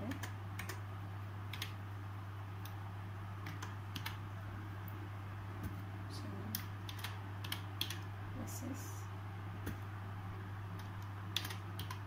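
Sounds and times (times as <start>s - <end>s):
laptop keyboard typing: 0.0s - 0.8s, 1.5s - 1.8s, 3.4s - 4.2s, 6.6s - 8.1s, 10.8s - 12.0s
steady low hum: 0.0s - 12.0s.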